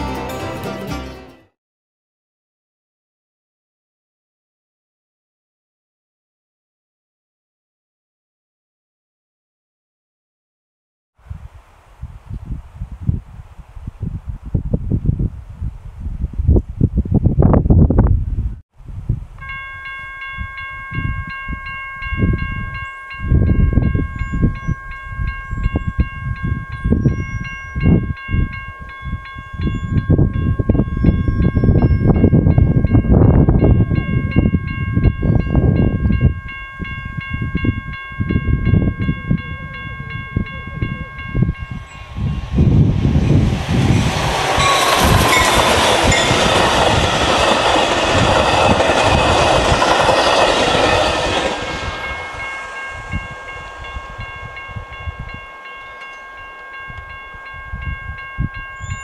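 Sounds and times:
wind buffeting microphone: 0:11.2 - 0:59.0
crossing warning bell dinging: 0:19.4 - 0:59.0
train wheels clacking over rails: 0:43.2 - 0:56.7.

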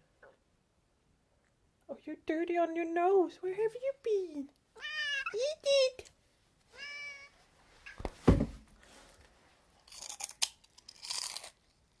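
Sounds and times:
cat meow: 0:04.8 - 0:05.4, 0:06.7 - 0:07.3
sharp thump: 0:08.2 - 0:08.6
crunching potato sticks: 0:09.8 - 0:12.0.

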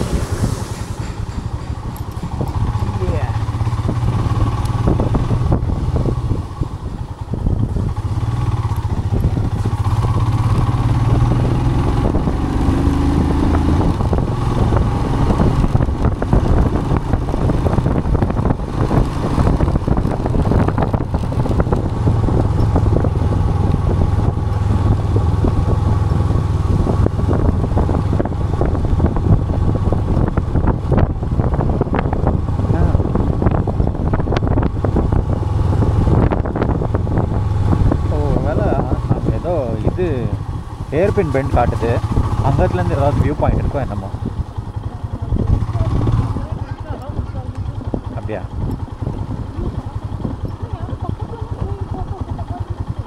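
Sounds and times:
motorcycle engine running: 0:00.0 - 0:53.0.

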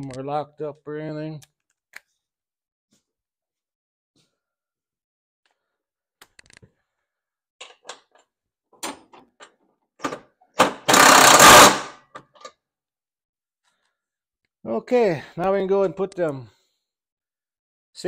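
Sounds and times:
power driver running: 0:10.6 - 0:11.9.

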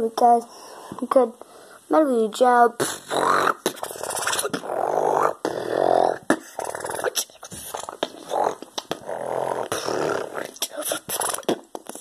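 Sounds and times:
boy beatboxing: 0:02.4 - 0:12.0.

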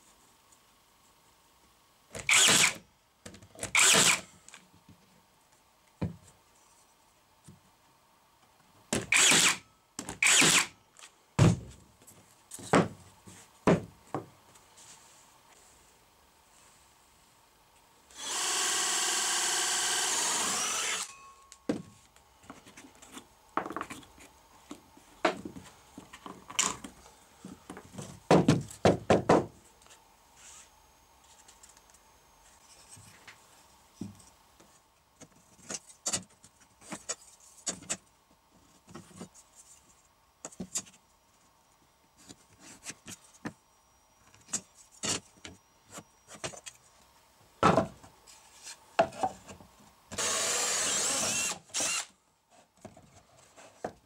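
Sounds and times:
cordless drill running: 0:02.3 - 0:02.8, 0:03.7 - 0:04.2, 0:09.1 - 0:09.6, 0:10.2 - 0:10.7, 0:18.1 - 0:21.1, 0:50.1 - 0:52.1.

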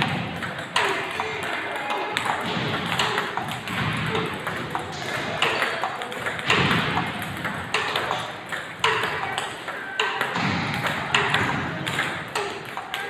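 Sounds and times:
balls bouncing on table: 0:00.0 - 0:13.0
table tennis balls clicking off paddles: 0:00.0 - 0:13.0.

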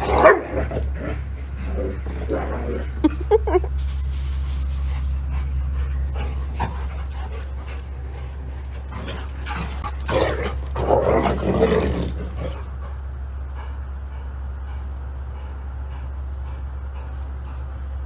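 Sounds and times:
dog barking: 0:00.0 - 0:00.5
steady low hum: 0:00.0 - 0:18.0.

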